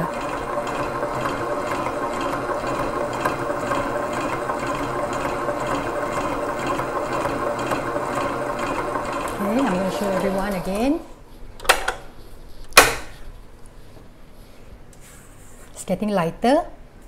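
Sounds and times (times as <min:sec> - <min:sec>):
stand mixer motor humming: 0:00.0 - 0:10.9.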